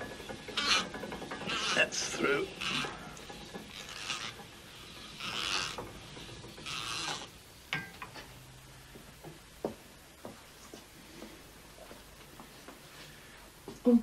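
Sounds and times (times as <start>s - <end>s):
press gears creaking and grating: 0.0s - 7.4s.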